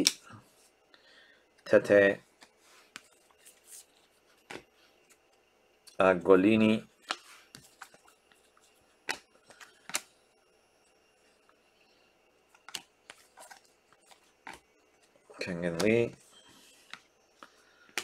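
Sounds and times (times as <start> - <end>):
trading cards clicking and rustling: 12.6 - 16.2.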